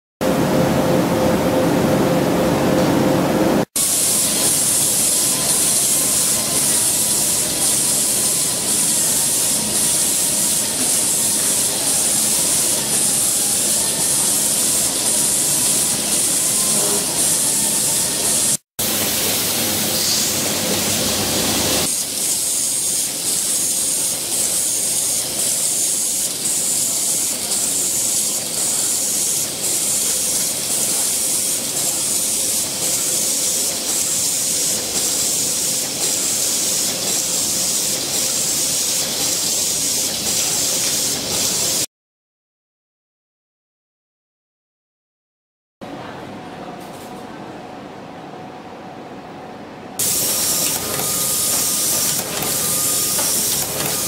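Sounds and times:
pulsing pneumatic hiss: 0:03.8 - 0:20.7, 0:21.4 - 0:41.6, 0:50.0 - 0:54.0
machine mechanical din: 0:50.0 - 0:54.0.

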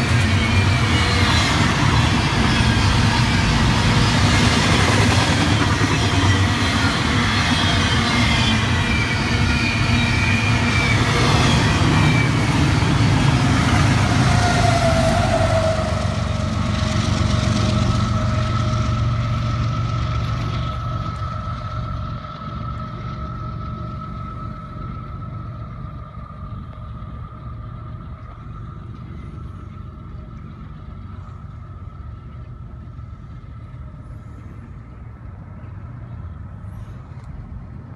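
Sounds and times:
high metallic wheel squeal: 0:00.0 - 0:17.0
distant train rumble: 0:00.0 - 0:37.9
faint steady whine: 0:00.0 - 0:37.9
train wheels over rail joints: 0:00.0 - 0:37.9.

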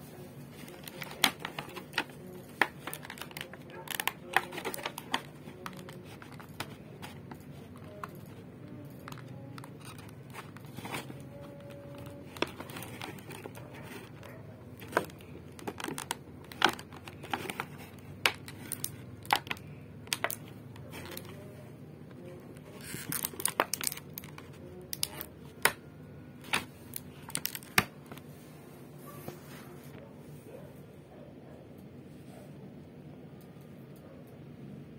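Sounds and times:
plastic packaging crinkling: 0:00.5 - 0:25.8, 0:26.4 - 0:28.2.

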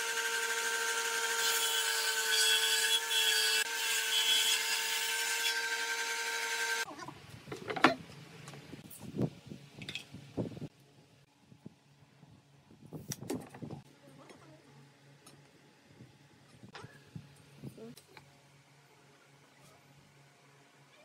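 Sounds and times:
jointer-planer cutting wood: 0:00.0 - 0:02.3.

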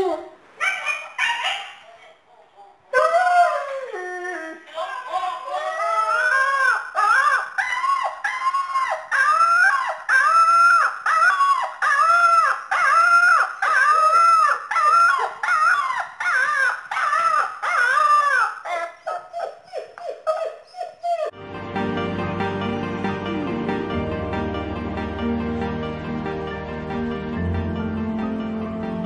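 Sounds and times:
puppy howling and yipping: 0:00.0 - 0:02.0, 0:02.9 - 0:21.4.

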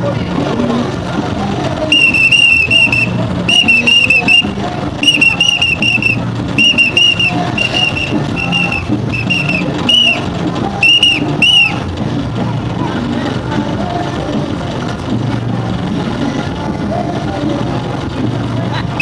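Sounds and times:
crowd voices: 0:00.0 - 0:19.0
shrill whistle blasts: 0:01.9 - 0:10.2, 0:10.8 - 0:11.8.

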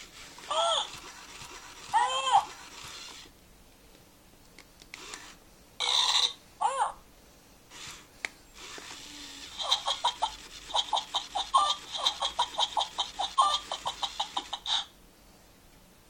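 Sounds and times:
small toy motor whirring: 0:00.0 - 0:03.3, 0:05.0 - 0:05.4, 0:07.7 - 0:14.9
toy monkey electronic chattering: 0:00.5 - 0:03.3, 0:08.6 - 0:14.9.

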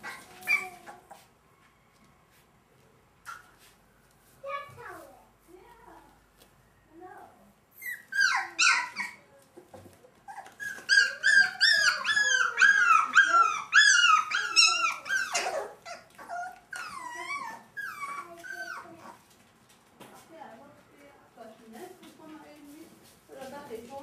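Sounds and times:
puppy whining and yipping: 0:00.0 - 0:01.2, 0:07.8 - 0:09.2, 0:10.2 - 0:19.2.

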